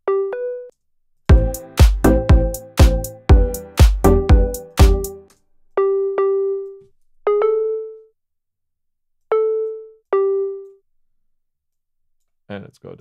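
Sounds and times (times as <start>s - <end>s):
synth melody notes: 1.3s - 8.0s.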